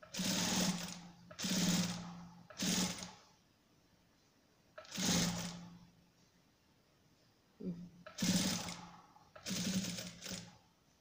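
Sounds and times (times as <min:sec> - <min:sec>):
sewing machine stitching: 0:00.0 - 0:03.2, 0:04.8 - 0:05.6, 0:08.1 - 0:10.6.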